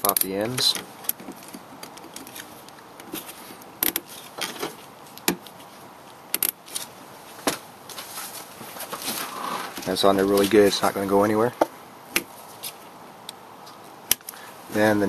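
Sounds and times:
cable ties clicking and rattling: 0.0 - 6.9.

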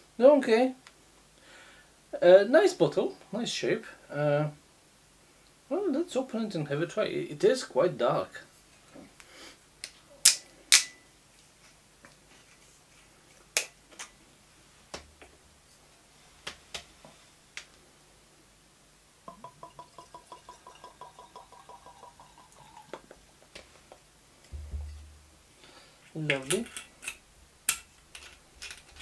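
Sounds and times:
liquid glugging into a glass: 19.3 - 22.9
bottle set down thump: 24.5 - 25.3.

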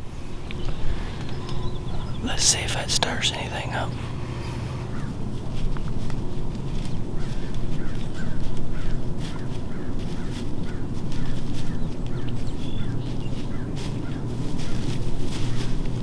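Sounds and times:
crow-like caws: 7.2 - 14.9.

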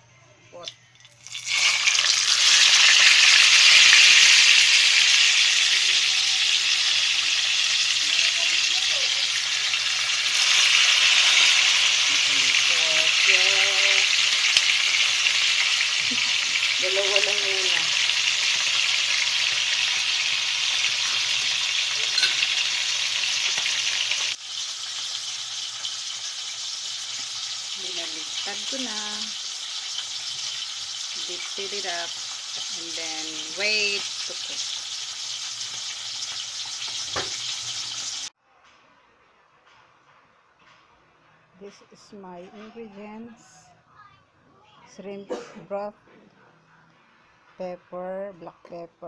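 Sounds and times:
fish sizzling in hot oil: 1.1 - 38.3.

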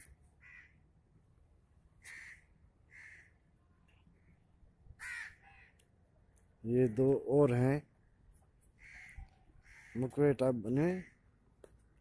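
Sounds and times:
crows cawing faintly: 0.3 - 0.9, 2.0 - 6.0, 6.7 - 11.6.

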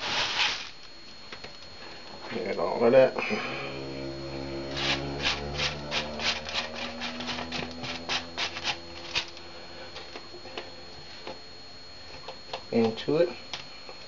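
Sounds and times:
spoon scraping paper plate: 4.8 - 9.3.

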